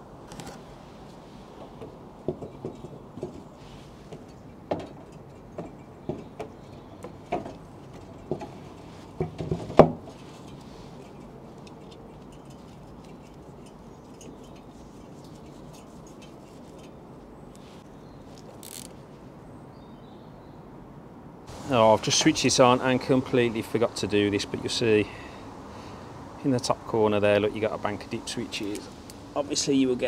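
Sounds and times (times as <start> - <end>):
steady background hiss: 0.0 - 30.0
fan blade knocking and clicking: 1.6 - 3.5, 4.1 - 16.9.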